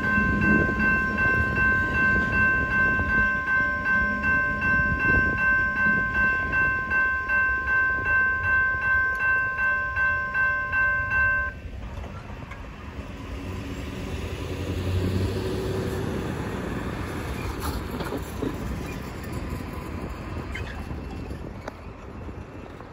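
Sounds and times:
railroad crossing bell ringing: 0:00.0 - 0:12.7.

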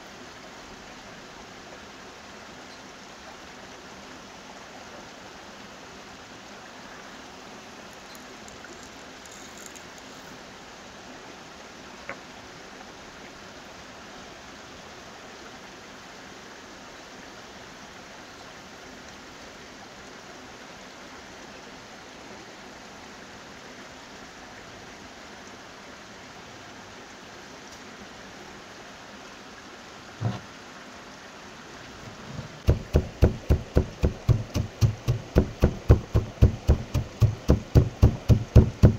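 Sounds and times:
steady rushing noise: 0:32.0 - 0:38.9
stone pestle pounding in mortar: 0:32.7 - 0:38.9.

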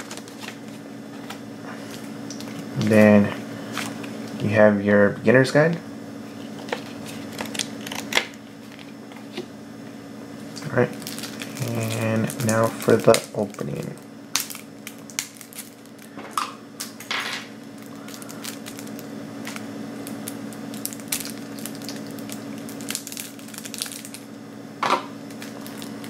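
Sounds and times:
foil snapping: 0:00.0 - 0:03.1, 0:06.5 - 0:09.3, 0:10.5 - 0:16.2, 0:16.8 - 0:24.3, 0:25.2 - 0:26.0
foil wrapper crinkling: 0:00.0 - 0:04.2, 0:06.4 - 0:09.4, 0:10.5 - 0:16.2, 0:17.6 - 0:24.3, 0:25.2 - 0:26.0
steady low hum: 0:00.0 - 0:26.0.

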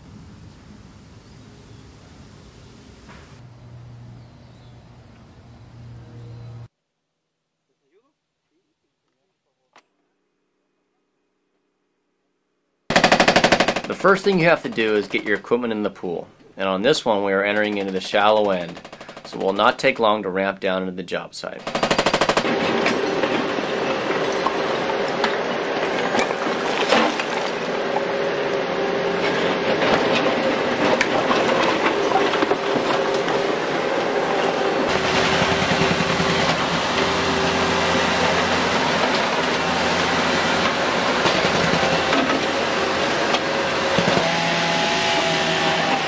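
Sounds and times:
diesel excavator engine running: 0:22.0 - 0:46.0.

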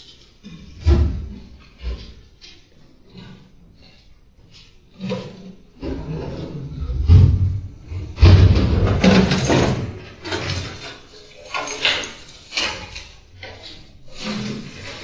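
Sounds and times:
knocks and clatters of household things: 0:00.0 - 0:15.0.

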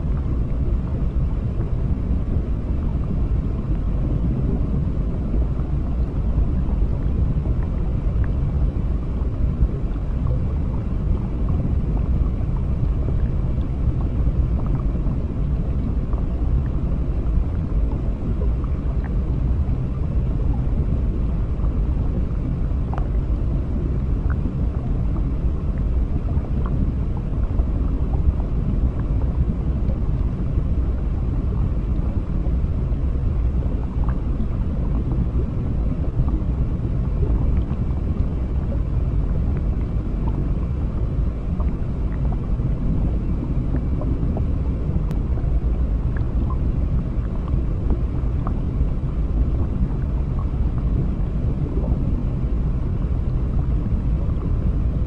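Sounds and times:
low underwater rumble: 0:00.0 - 0:55.0.

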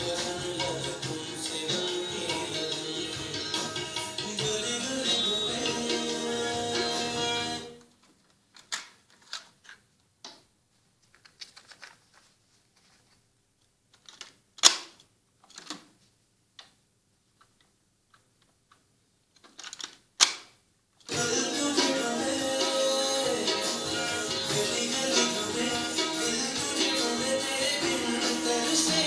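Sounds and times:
music playback from tape: 0:00.0 - 0:07.9, 0:21.1 - 0:29.0.

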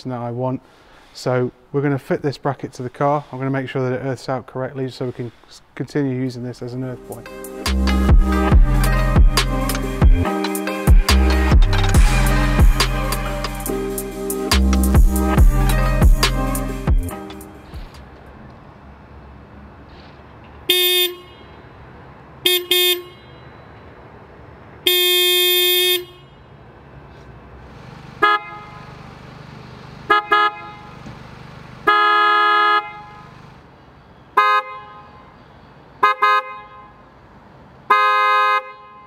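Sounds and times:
car horn toots and blasts: 0:20.6 - 0:21.8, 0:22.4 - 0:23.7, 0:24.8 - 0:26.5, 0:28.2 - 0:29.0, 0:30.0 - 0:31.0, 0:31.8 - 0:33.4, 0:34.4 - 0:35.4, 0:36.0 - 0:37.1, 0:37.9 - 0:39.0.

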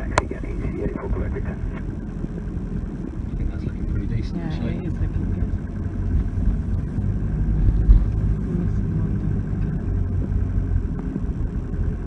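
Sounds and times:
vehicle engine and tyre noise: 0:00.0 - 0:12.0
vehicle bump: 0:05.0 - 0:11.7.

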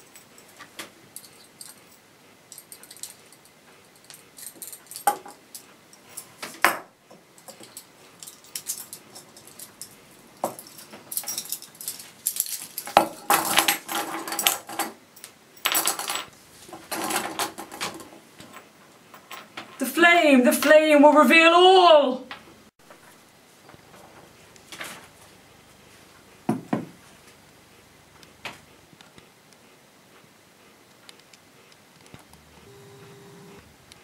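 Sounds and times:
handcuffs and keys jangling: 0:00.0 - 0:19.6.

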